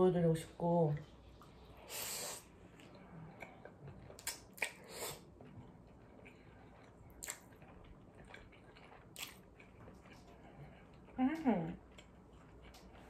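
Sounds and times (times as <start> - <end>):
noodles slurped: 1.9 - 11.1
close-miked chewing: 2.4 - 13.0
wet mouth clicks and smacks: 4.1 - 5.0, 7.1 - 7.7, 9.1 - 9.4.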